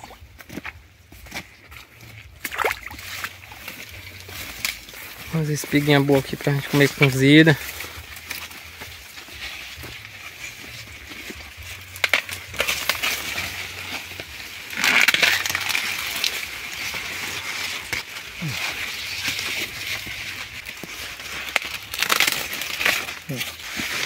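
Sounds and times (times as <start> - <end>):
dry corn leaves rustling: 0.0 - 24.0
corn ears snapping off: 10.6 - 24.0.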